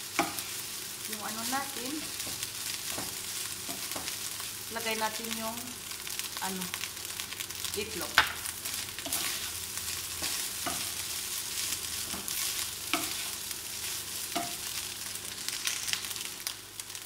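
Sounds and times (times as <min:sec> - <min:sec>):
fried rice sizzling in pan: 0:00.0 - 0:17.0
spatula scraping and knocking pan: 0:02.2 - 0:04.2, 0:09.0 - 0:11.0, 0:12.0 - 0:13.4.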